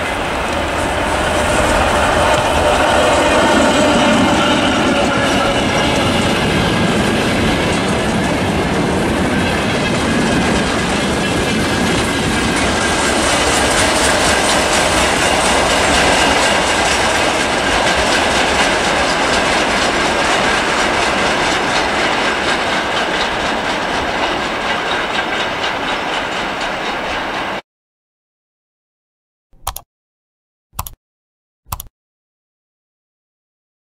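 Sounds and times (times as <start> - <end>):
diesel locomotive engine: 0.0 - 27.6
train wheels clattering over rail joints: 0.0 - 27.6.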